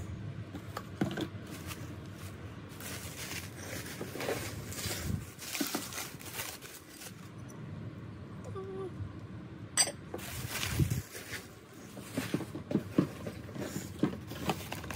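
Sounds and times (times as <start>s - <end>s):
bubble wrap rustling and crinkling: 1.4s - 7.4s, 10.2s - 12.6s, 13.4s - 14.9s.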